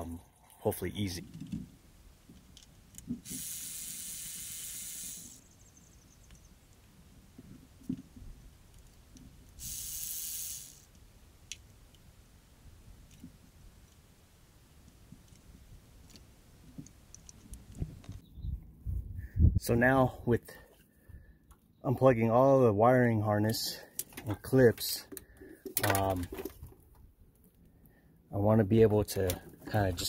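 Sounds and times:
electric ratchet spinning: 0:03.2 - 0:05.5, 0:09.6 - 0:11.0
tool handling clicks and knocks: 0:23.9 - 0:27.0.

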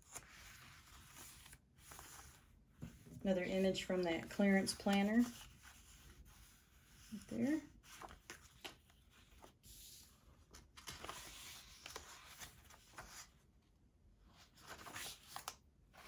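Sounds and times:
pages turning: 0:00.0 - 0:03.0, 0:07.0 - 0:13.3, 0:14.4 - 0:16.0
paper rustling: 0:00.0 - 0:13.3, 0:14.4 - 0:16.0.

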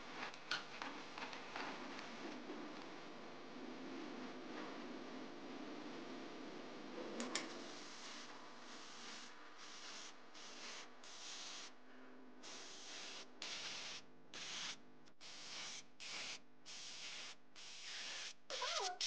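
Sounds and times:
spray gun air hiss bursts: 0:07.7 - 0:11.8, 0:12.4 - 0:19.0.

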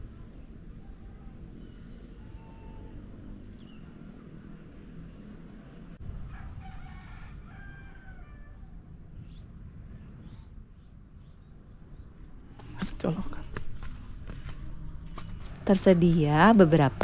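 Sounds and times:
rooster crowing: 0:00.8 - 0:03.0, 0:06.2 - 0:08.9.

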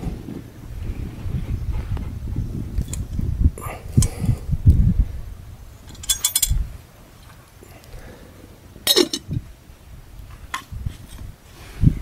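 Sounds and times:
metal lid clinking on pot: 0:08.9 - 0:09.3.

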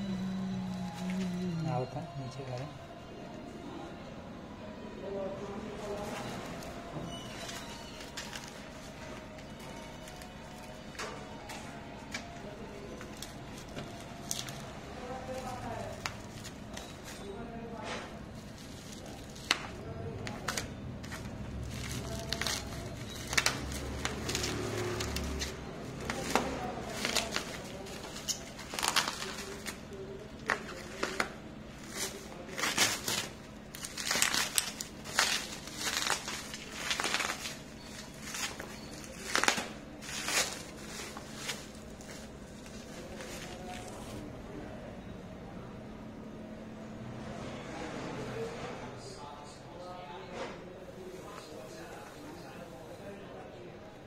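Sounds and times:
bubble wrap crinkling: 0:05.7 - 0:17.6, 0:18.2 - 0:44.3.

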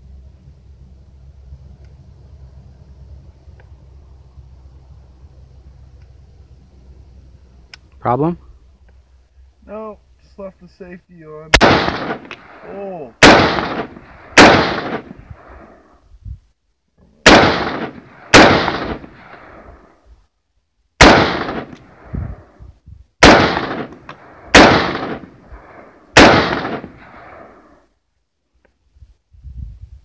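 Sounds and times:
rifle shots echoing: 0:11.5 - 0:15.8, 0:17.2 - 0:19.9, 0:21.0 - 0:22.1, 0:23.2 - 0:27.7.

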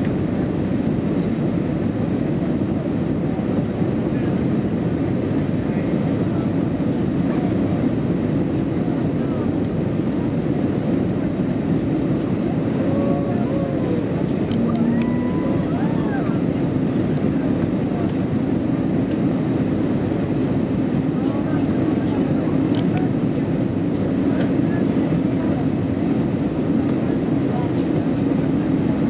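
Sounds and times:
jet engines droning: 0:00.0 - 0:29.0
rush of airflow: 0:06.6 - 0:22.6.

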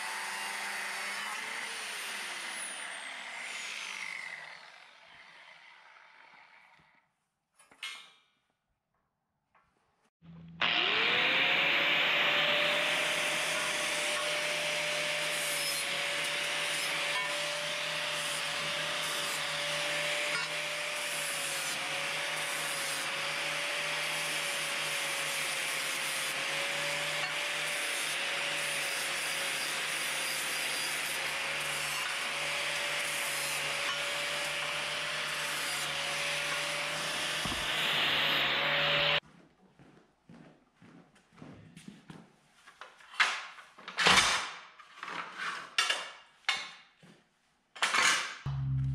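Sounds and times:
angle grinder grinding metal: 0:10.3 - 0:39.2.

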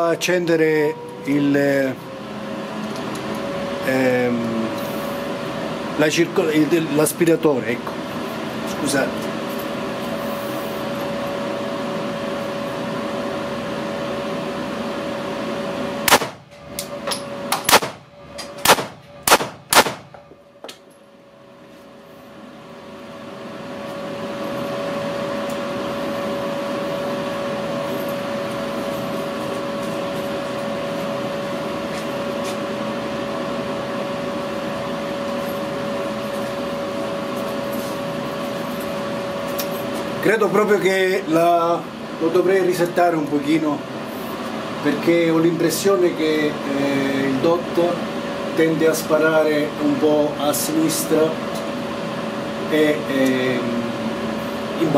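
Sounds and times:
extractor fan hum: 0:00.0 - 0:54.9
pistol shots: 0:16.1 - 0:16.4, 0:17.6 - 0:18.0, 0:18.6 - 0:20.2.

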